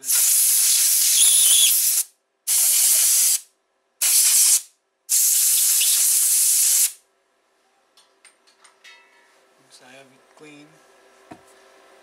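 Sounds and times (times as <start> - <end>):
compressed air blasts hissing: 0.0 - 7.0.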